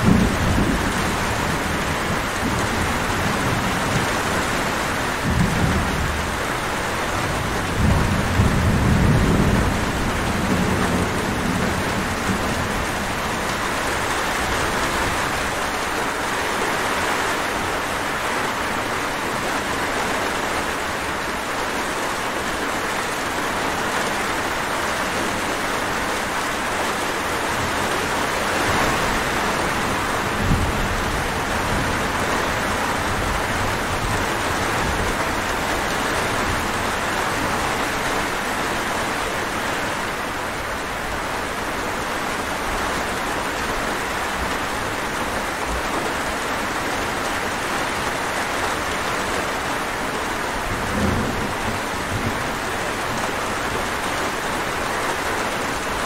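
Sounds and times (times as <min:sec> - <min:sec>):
thunder rumbling: 0:00.0 - 0:15.8, 0:27.5 - 0:41.6
heavy rainfall: 0:00.0 - 0:56.0.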